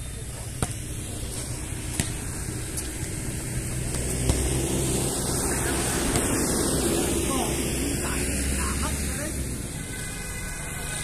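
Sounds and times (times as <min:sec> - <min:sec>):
ball being kicked: 0:00.4 - 0:03.1, 0:03.7 - 0:04.8, 0:05.6 - 0:06.6.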